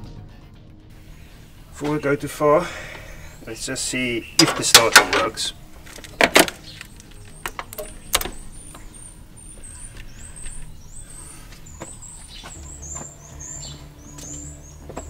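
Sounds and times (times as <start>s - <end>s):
steady low hum: 0.9s - 15.0s
hands handling wiring clicks: 4.4s - 8.9s.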